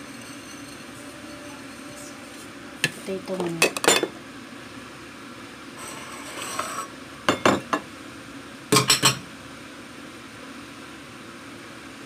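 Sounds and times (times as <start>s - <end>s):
spoon scraping a dish: 0.0s - 2.1s, 5.8s - 6.9s.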